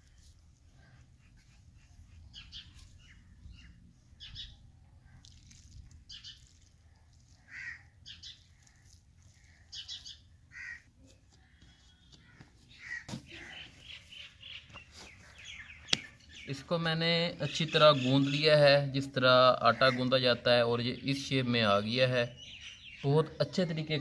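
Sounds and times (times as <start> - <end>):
small birds chirping: 0.0 - 24.0
crows cawing: 7.4 - 8.0, 10.5 - 13.9.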